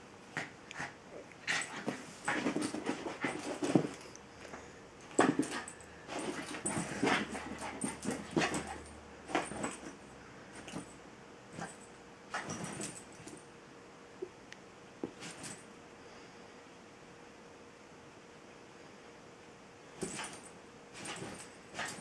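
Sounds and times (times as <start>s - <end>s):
scuffling: 5.1s - 9.9s.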